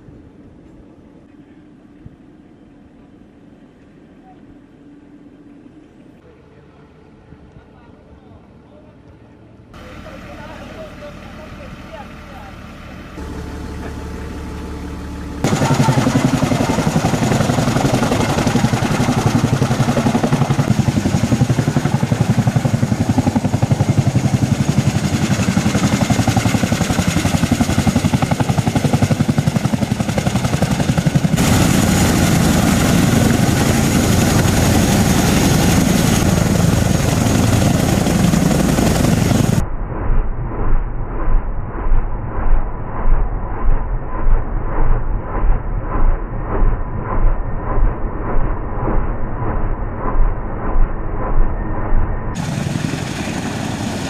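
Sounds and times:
helicopter rotor beat: 9.8 - 39.6, 40.2 - 54.0.

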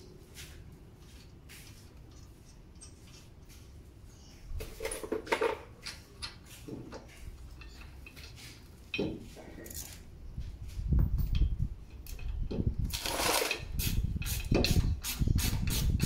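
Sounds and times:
metal tools clinking: 1.7 - 3.6, 7.1 - 10.1.

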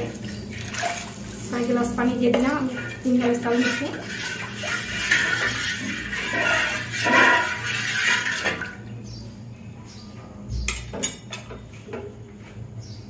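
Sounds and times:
broth sloshing in a metal pot: 0.0 - 9.0.

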